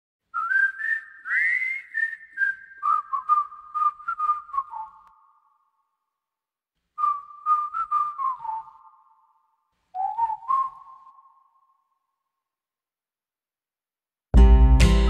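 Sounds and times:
whistled tune: 0.3 - 5.8, 7.0 - 12.2.

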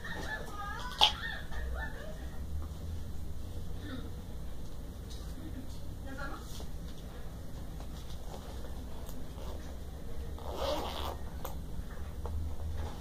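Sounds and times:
steady low hum: 0.0 - 13.0
zipper pulled open: 9.3 - 9.7, 10.4 - 11.2.

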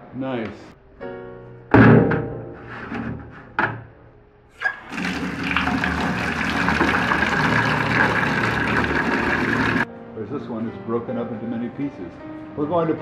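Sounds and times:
bucket knocking in metal sink: 4.6 - 9.9
tap water running into bucket: 4.6 - 9.9.

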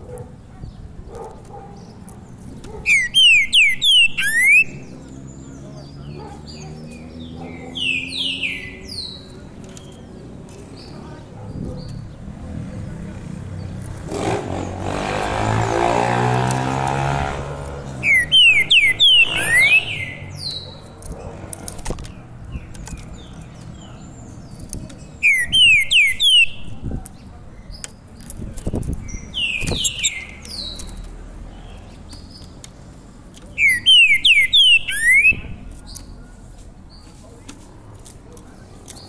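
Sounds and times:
soft bird clicks and calls: 0.0 - 15.4, 16.3 - 39.0
songbird whistling: 2.8 - 5.0, 18.0 - 20.7, 25.2 - 26.8, 29.1 - 30.8, 33.6 - 35.6.

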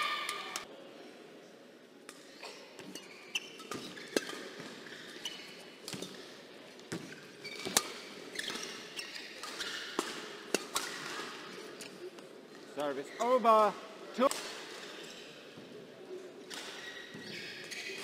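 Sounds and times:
shoes squeaking on court: 2.3 - 10.2, 13.0 - 13.4, 16.5 - 18.0
racket hitting shuttlecock: 6.9 - 11.4.

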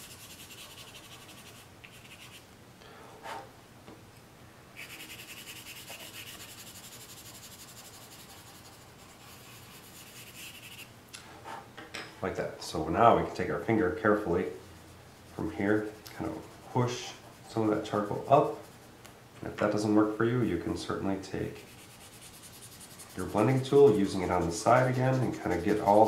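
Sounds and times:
pencil scratching on paper: 0.0 - 2.4, 4.8 - 10.9, 14.1 - 18.9, 21.6 - 26.0.

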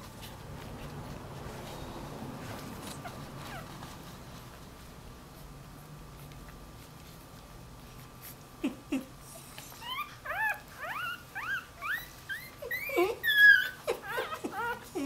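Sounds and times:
puppy grunting and squeaking: 2.8 - 3.8, 8.6 - 15.0.

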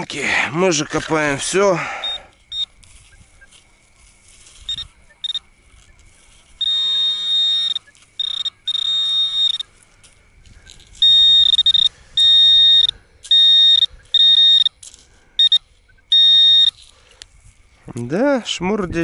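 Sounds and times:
metal detector beeping: 1.8 - 3.7, 4.4 - 9.9, 10.7 - 17.0.

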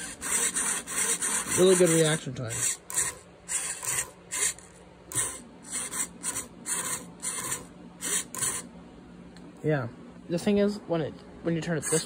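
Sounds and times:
servo whirring buzz: 0.0 - 8.7.

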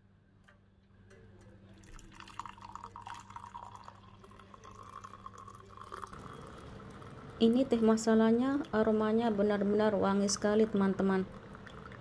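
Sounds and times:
tea trickling into a mug: 1.4 - 8.9, 10.6 - 12.0.

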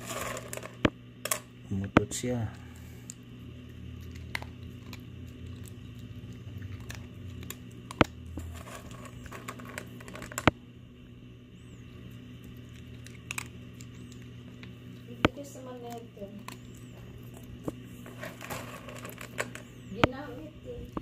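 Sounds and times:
dog crunching dry kibble: 0.0 - 1.0, 3.0 - 10.6, 11.8 - 19.9.

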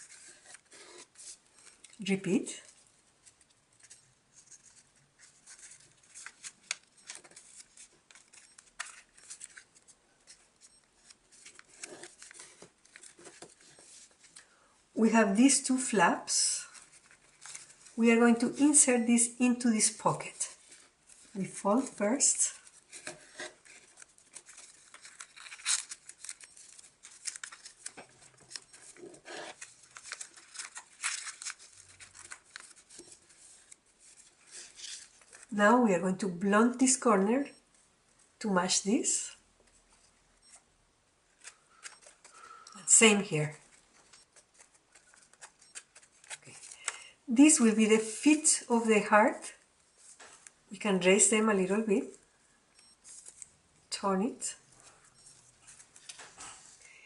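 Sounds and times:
paper rustling and crinkling: 0.0 - 14.6, 16.6 - 18.6, 19.9 - 35.6, 43.6 - 46.9, 53.0 - 53.5, 54.8 - 56.8.

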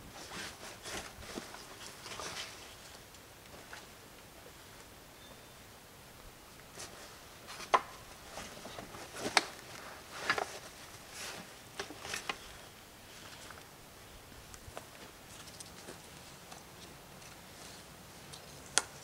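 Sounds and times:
fabric rustling: 6.7 - 18.6.

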